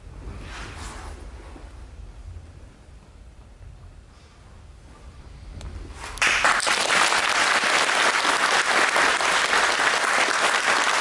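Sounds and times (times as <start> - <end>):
audience applauding: 6.2 - 11.0.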